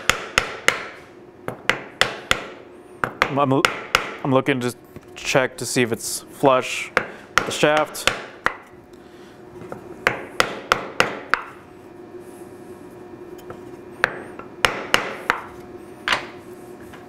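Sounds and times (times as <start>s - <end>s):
hammer tapping on wood: 10.0s - 11.5s, 14.0s - 15.5s.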